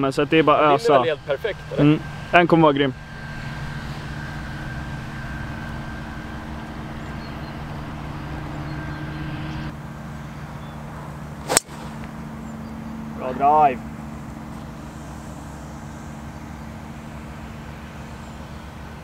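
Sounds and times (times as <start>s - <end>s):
steady motor-like hum: 0.0s - 19.0s
golf club striking ball: 11.4s - 12.2s.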